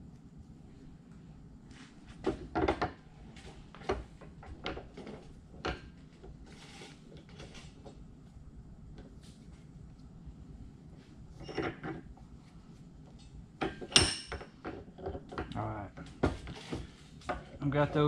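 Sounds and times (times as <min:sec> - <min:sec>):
knocks and clunks of metal parts: 0:13.6 - 0:17.5.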